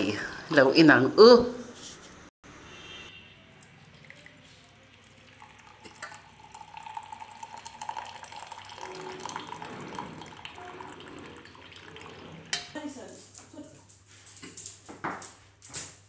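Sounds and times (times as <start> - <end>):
tea pouring into a mug: 3.6 - 12.7.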